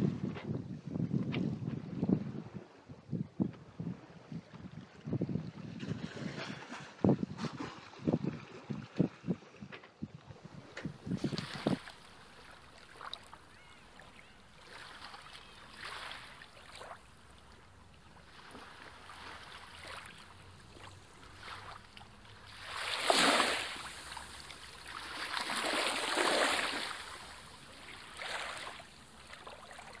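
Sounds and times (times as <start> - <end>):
sea waves washing in: 10.5 - 30.0.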